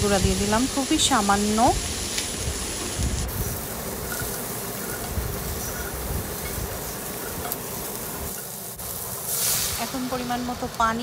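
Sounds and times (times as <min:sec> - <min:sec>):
vegetables sizzling in oil: 0:00.0 - 0:11.0
spatula scraping pan: 0:03.4 - 0:08.6.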